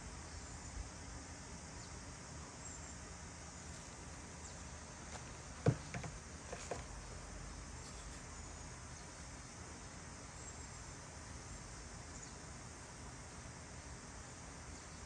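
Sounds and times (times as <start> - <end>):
faint steady hiss: 0.0 - 15.0
handling noise: 5.0 - 7.0.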